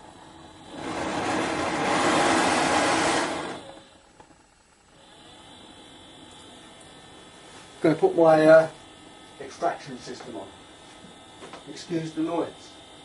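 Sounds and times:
hair dryer rushing air: 0.0 - 3.8, 8.1 - 13.0
faint steady hum: 0.0 - 13.0.

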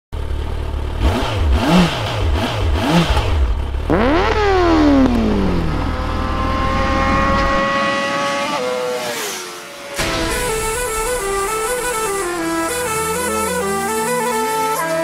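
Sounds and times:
motorcycle engine revving: 0.2 - 15.0
music with stepping notes: 10.0 - 15.0.

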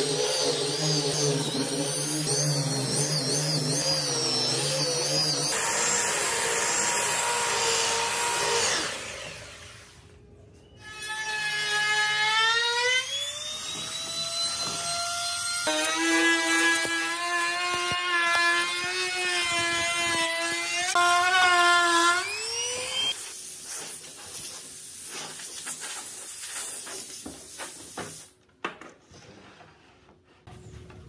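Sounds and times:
trim router whining: 0.0 - 9.7, 11.0 - 23.2.

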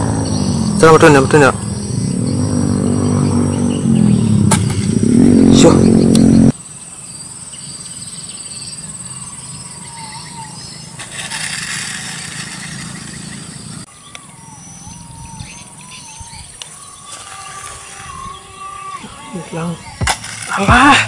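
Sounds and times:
birds chirping: 0.0 - 21.0
insects buzzing: 0.0 - 21.0
small electric motors whining: 9.8 - 13.9, 15.8 - 21.0.

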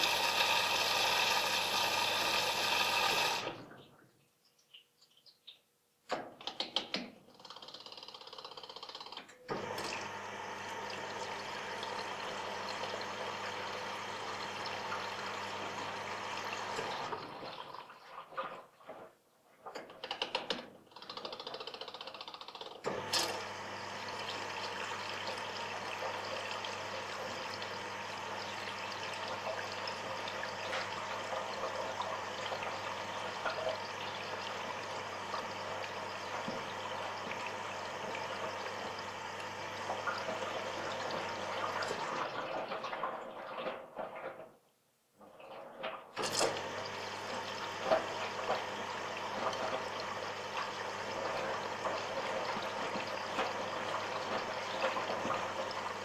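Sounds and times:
washing machine filling with water: 0.0 - 3.8, 8.5 - 19.2, 19.8 - 44.5, 45.2 - 56.0.

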